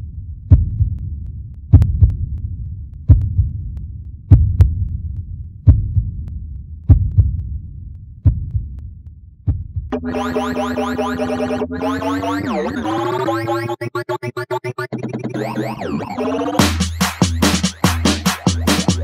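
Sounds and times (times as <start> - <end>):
heartbeat thumps: 0.5 - 7.6, 8.2 - 10.0.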